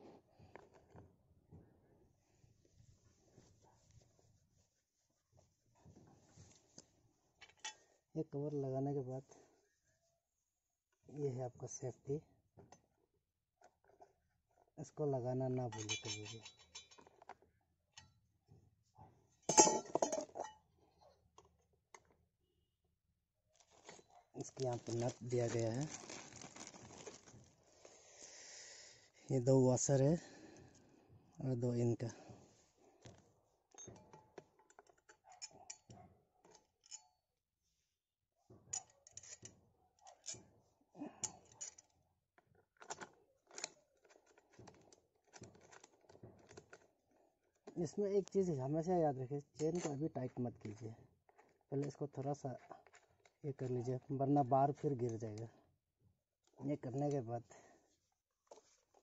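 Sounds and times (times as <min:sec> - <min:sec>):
small metal parts clinking: 0:15.8 - 0:17.3, 0:19.5 - 0:20.6.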